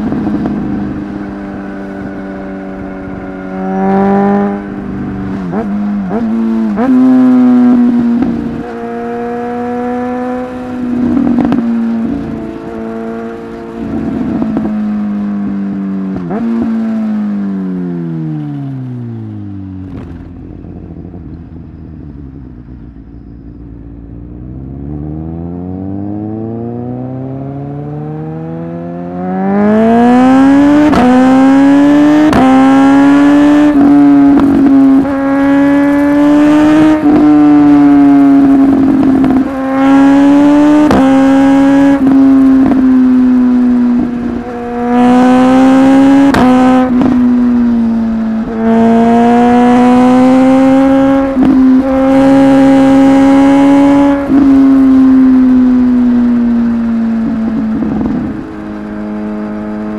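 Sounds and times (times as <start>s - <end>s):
motorcycle engine accelerating: 0.0s - 59.9s.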